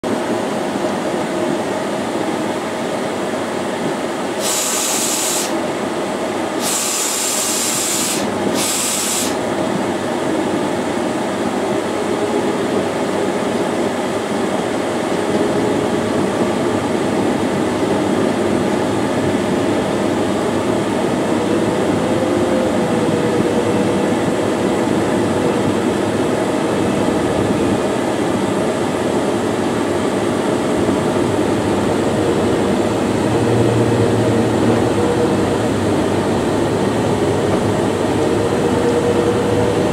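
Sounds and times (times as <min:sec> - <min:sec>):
short bursts of hissing: 0:04.4 - 0:05.6, 0:06.6 - 0:09.4.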